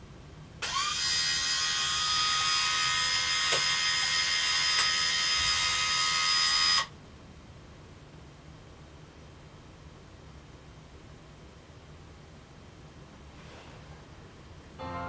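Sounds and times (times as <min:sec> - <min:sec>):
curtain motor whining: 0:00.6 - 0:06.9.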